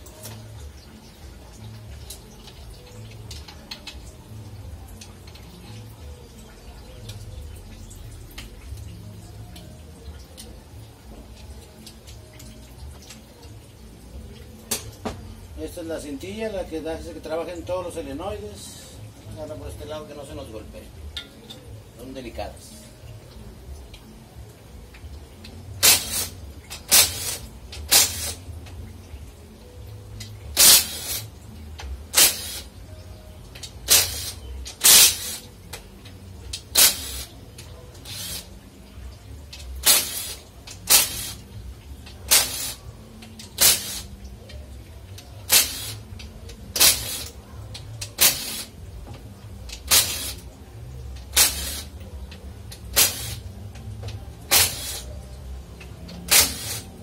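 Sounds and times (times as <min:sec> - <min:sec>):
power ratchet bursts: 0:51.4 - 0:51.9, 0:56.3 - 0:56.8.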